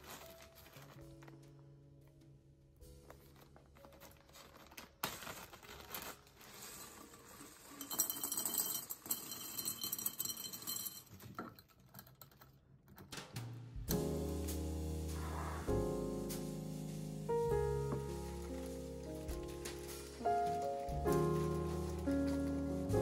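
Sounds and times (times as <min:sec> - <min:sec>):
plastic bag crinkling: 0:00.0 - 0:01.6, 0:02.9 - 0:08.7, 0:16.6 - 0:23.0
music: 0:00.0 - 0:08.2, 0:13.0 - 0:23.0
nut shells clattering on glass: 0:07.5 - 0:12.5.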